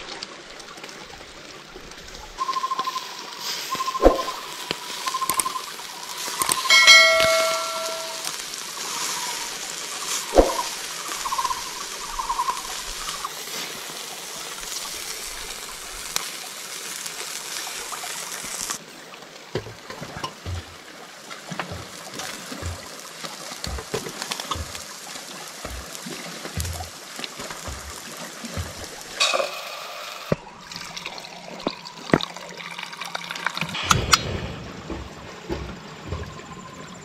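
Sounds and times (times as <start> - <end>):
stream water rushing: 0.0 - 36.4
faint chirps: 2.4 - 13.3
low thuds: 21.7 - 23.0, 23.6 - 24.9, 25.6 - 26.0, 26.6 - 29.2, 33.8 - 37.0.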